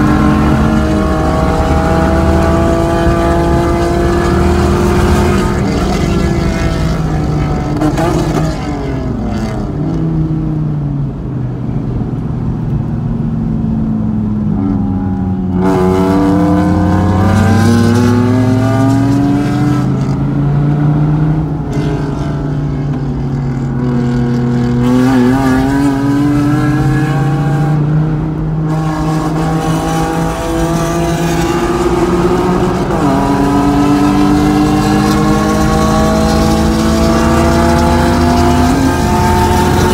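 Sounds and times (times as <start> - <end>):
car engine revving: 0.0 - 11.2, 12.3 - 39.9.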